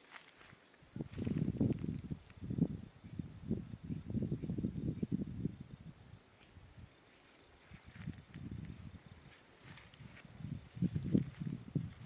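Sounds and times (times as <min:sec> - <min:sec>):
footsteps through vegetation: 0:00.0 - 0:02.4, 0:06.4 - 0:12.0
insect chirping: 0:00.0 - 0:12.0.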